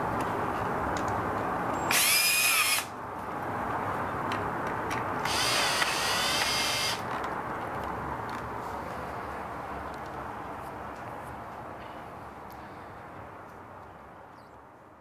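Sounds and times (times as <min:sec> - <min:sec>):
cordless drill motor whine: 0:01.8 - 0:02.9, 0:05.2 - 0:07.0.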